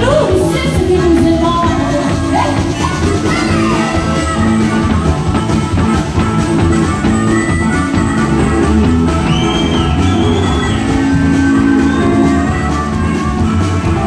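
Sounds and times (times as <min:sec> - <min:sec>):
woman singing: 0:00.0 - 0:05.5
drums: 0:00.0 - 0:14.0
electric guitars: 0:00.0 - 0:14.0
harmonica: 0:01.7 - 0:14.0.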